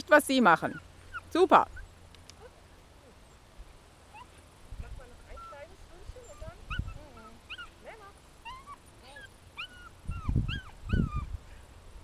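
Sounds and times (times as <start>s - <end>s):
dog whining: 8.4s - 11.3s.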